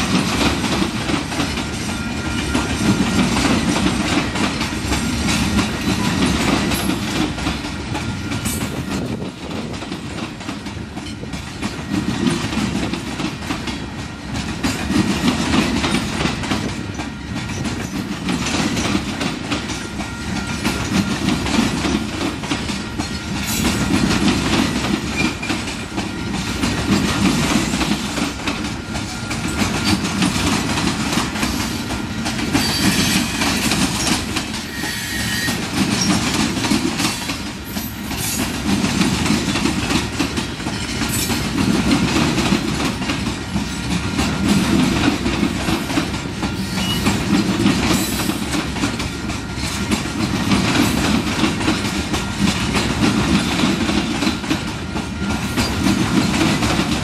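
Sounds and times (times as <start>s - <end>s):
wheels clicking over rail joints: 0.0s - 34.8s, 35.4s - 57.0s
freight train rolling past: 0.0s - 57.0s.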